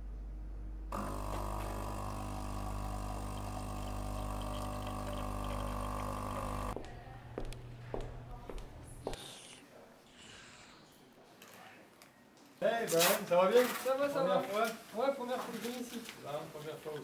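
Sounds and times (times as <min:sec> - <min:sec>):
coffee machine humming: 0:00.9 - 0:09.2.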